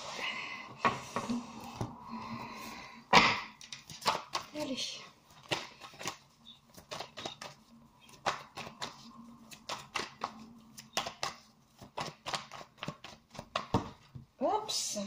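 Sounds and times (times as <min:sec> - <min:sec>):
cards being shuffled: 0:03.6 - 0:14.0.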